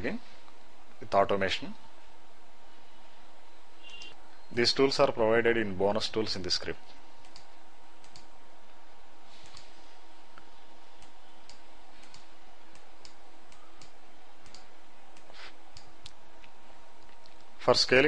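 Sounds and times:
faint hum: 0.0s - 18.0s
computer mouse clicking: 7.2s - 8.3s, 11.0s - 16.1s.

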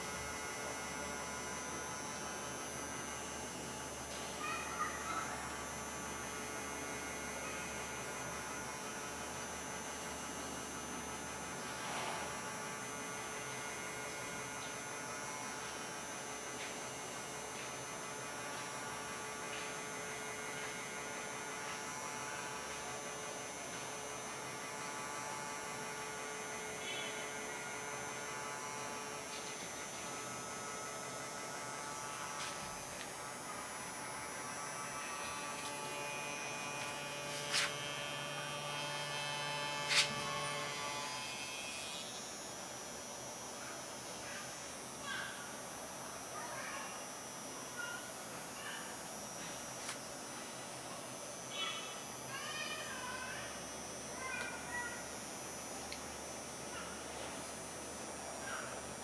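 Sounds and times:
small motor humming: 4.8s - 45.8s.

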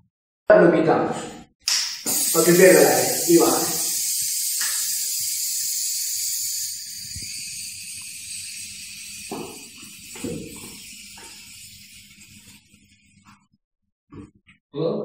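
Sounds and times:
air hissing out of bottle: 1.9s - 13.0s.

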